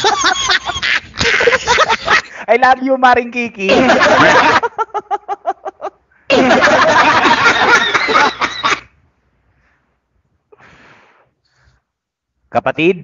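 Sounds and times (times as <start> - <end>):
person laughing loudly: 0.0 - 2.4, 3.7 - 8.9.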